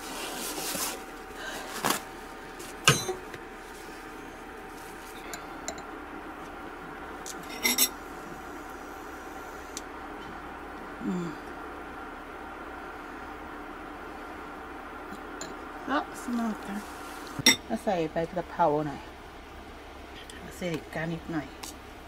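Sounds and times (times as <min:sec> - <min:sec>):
steady background hum: 0:00.0 - 0:22.0
utensils knocking against dishes: 0:02.9 - 0:03.2.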